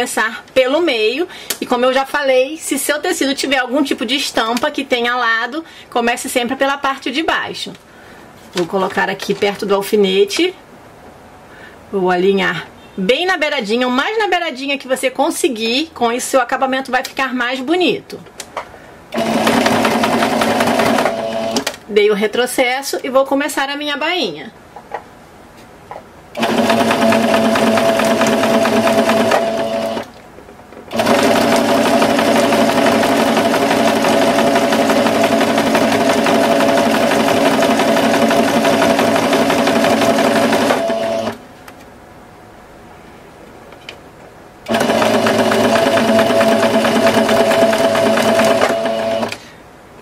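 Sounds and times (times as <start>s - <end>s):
sewing machine running: 19.2s - 21.7s, 26.4s - 30.1s, 30.9s - 41.4s, 44.7s - 49.4s.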